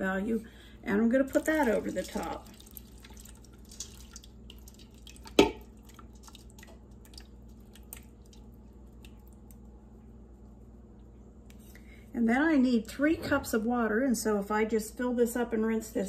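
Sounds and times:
thick sauce pouring into a pot: 1.3s - 9.2s
wet drips and plops: 1.3s - 9.7s.

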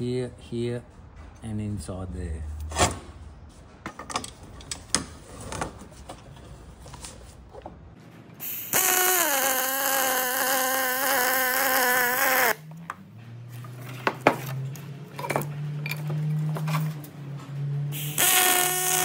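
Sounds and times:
welding arc buzzing: 8.4s - 12.6s, 17.9s - 19.0s.

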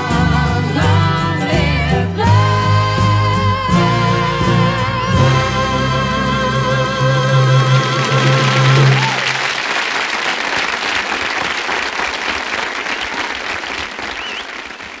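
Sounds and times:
woman singing with vibrato: 0.0s - 9.1s
band playing: 0.0s - 9.7s
audience applause: 7.8s - 15.0s.

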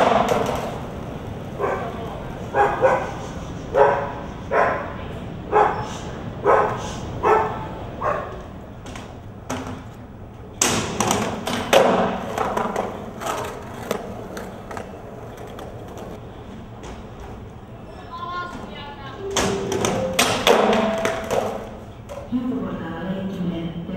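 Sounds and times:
skateboard clattering on metal: 0.0s - 3.0s, 8.0s - 16.2s, 19.3s - 22.3s
dog barking: 1.6s - 8.4s.

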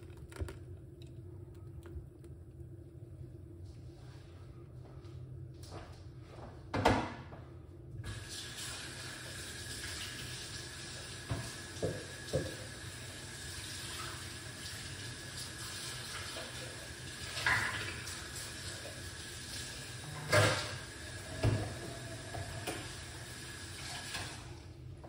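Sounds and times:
trickle of running liquid: 8.0s - 24.7s.

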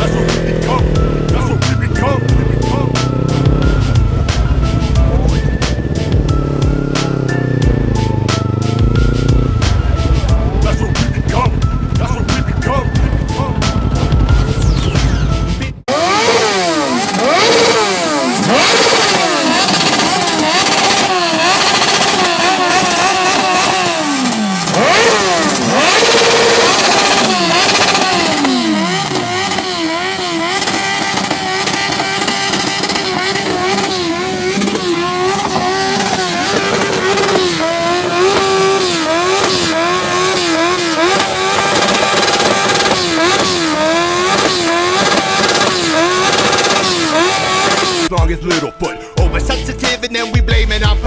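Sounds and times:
music: 0.0s - 15.9s, 47.8s - 51.0s
motorcycle engines revving: 0.0s - 48.1s.

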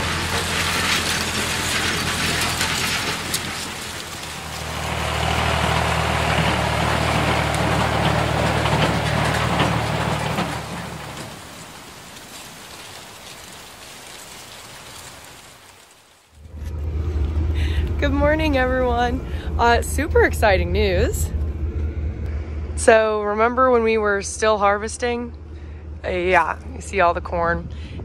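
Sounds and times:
rattling clatter of implement: 0.0s - 15.9s
tractor engine running: 0.0s - 28.0s.

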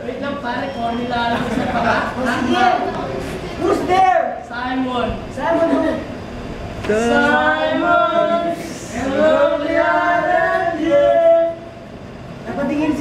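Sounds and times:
voices singing long notes: 6.8s - 11.9s.

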